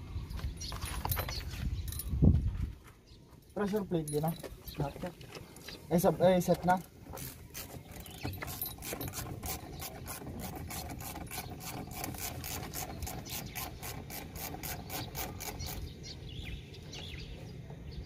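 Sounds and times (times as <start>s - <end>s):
ratchet wrench clicking: 7.2s - 15.9s.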